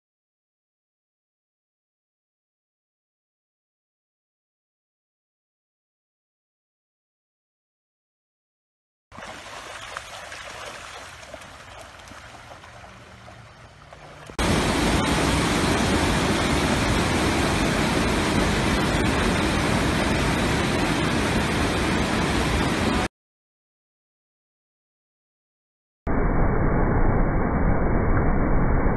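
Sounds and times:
river water rushing through rapids: 0:09.2 - 0:23.1.

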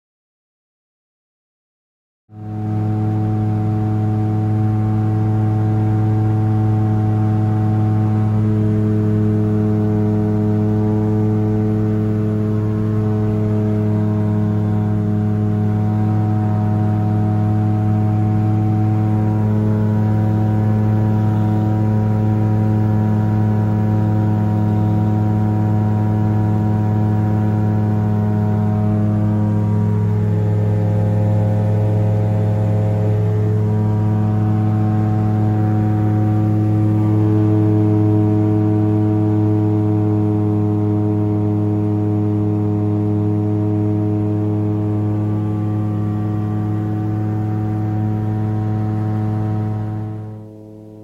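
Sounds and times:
aircraft engine droning: 0:02.3 - 0:51.0.

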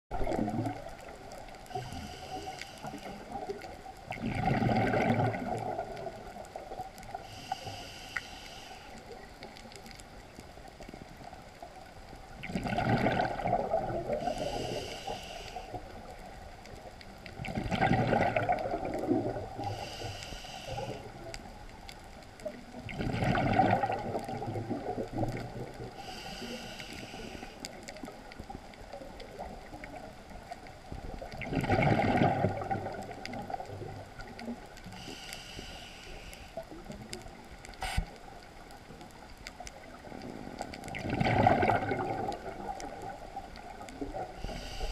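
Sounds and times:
exhaled air bubbling: 0:00.1 - 0:09.9, 0:10.8 - 0:21.8, 0:22.4 - 0:38.7, 0:39.7 - 0:44.9
regulator inhale hiss: 0:01.7 - 0:03.4, 0:07.1 - 0:09.4, 0:14.1 - 0:16.1, 0:19.6 - 0:21.4, 0:25.9 - 0:28.0, 0:34.8 - 0:36.8, 0:44.1 - 0:44.9.

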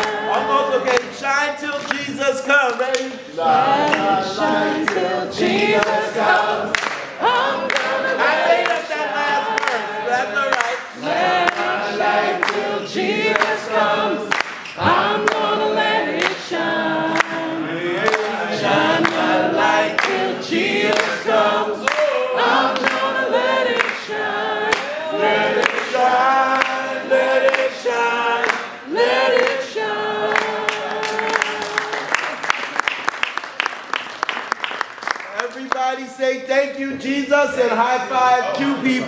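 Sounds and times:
hand claps: 0:00.0 - 0:03.2, 0:05.8 - 0:09.9, 0:10.5 - 0:11.8, 0:12.4 - 0:12.7, 0:14.3 - 0:15.5, 0:23.8 - 0:24.0, 0:25.6 - 0:26.8, 0:28.4 - 0:29.6, 0:30.3 - 0:36.0
group of people singing: 0:00.0 - 0:32.6, 0:37.0 - 0:39.0.

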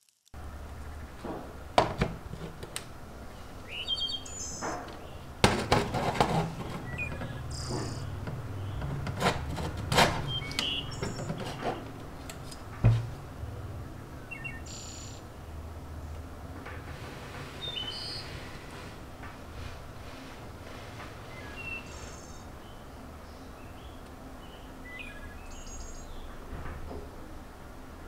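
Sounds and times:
steady low hum: 0:00.4 - 0:17.4.

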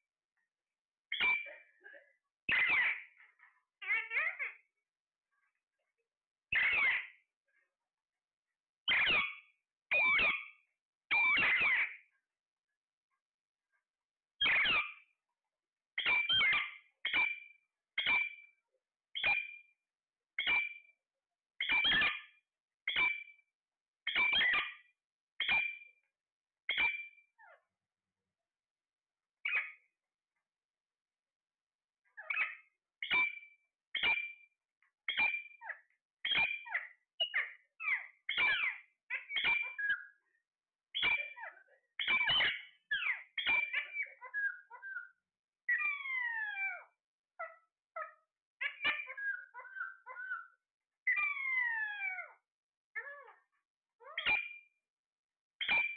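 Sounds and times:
parakeet calling: 0:01.1 - 0:01.8, 0:02.5 - 0:04.7, 0:06.5 - 0:07.1, 0:11.3 - 0:11.9, 0:16.0 - 0:18.4, 0:25.4 - 0:25.9, 0:32.2 - 0:33.4, 0:35.1 - 0:40.2, 0:41.0 - 0:52.4, 0:54.0 - 0:54.6
parakeets squawking: 0:02.5 - 0:03.0, 0:06.6 - 0:07.0, 0:11.4 - 0:11.8, 0:48.6 - 0:50.5.

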